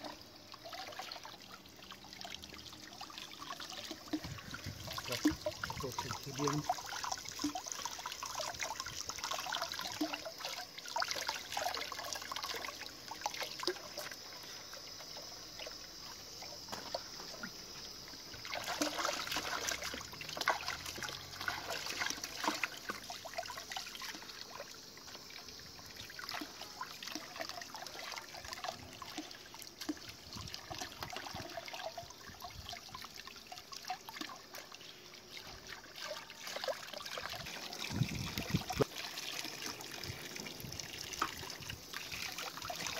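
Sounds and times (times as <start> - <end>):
water running from a hose: 0.0 - 42.9
water splashing and trickling: 0.0 - 42.9.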